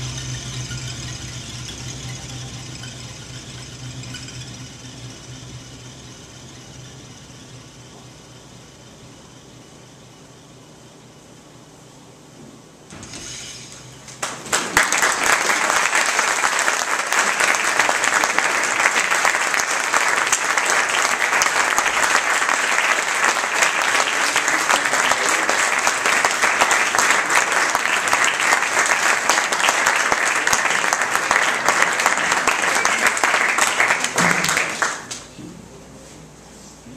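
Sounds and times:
audience applauding: 14.1 - 35.3.

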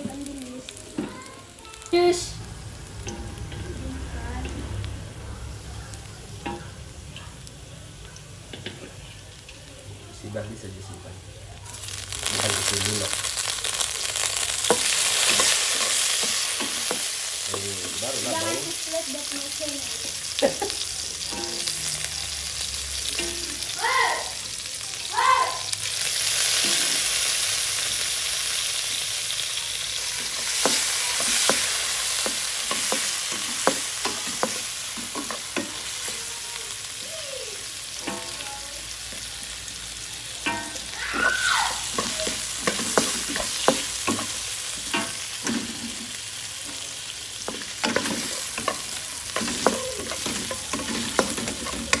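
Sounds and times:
food sizzling in hot oil: 0.0 - 52.0
spatula scraping a wok: 30.1 - 36.2, 47.4 - 52.0.

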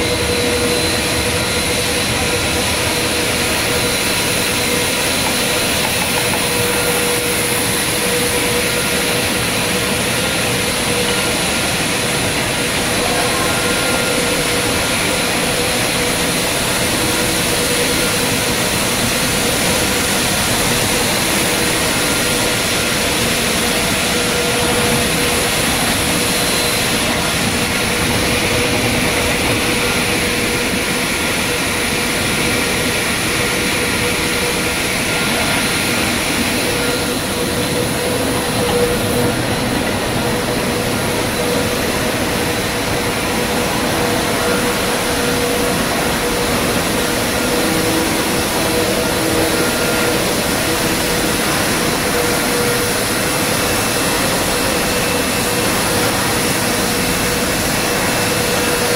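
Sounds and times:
production line machinery whirring: 0.0 - 58.9.

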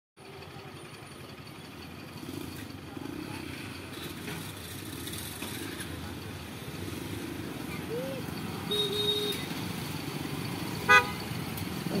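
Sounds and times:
motorcycle engines idling: 0.2 - 12.0
people talking: 7.7 - 9.4.

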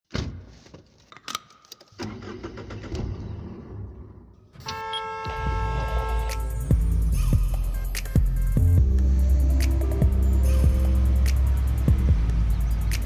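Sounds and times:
vehicle engine rumbling: 5.3 - 13.0
music with heavy bass: 5.5 - 13.0.

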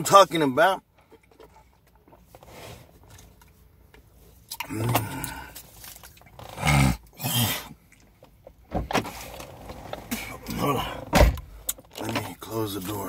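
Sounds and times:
man grunting or humming: 4.6 - 5.6.

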